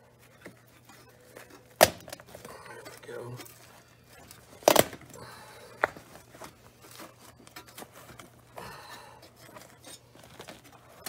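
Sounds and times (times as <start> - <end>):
faint scraping and rustling: 5.2 - 11.0.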